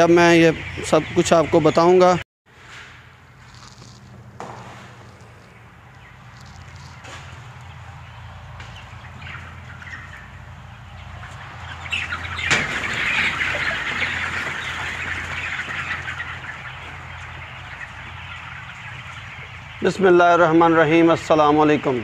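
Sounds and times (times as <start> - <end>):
chickens calling and flapping: 0.0 - 2.2, 3.5 - 22.0.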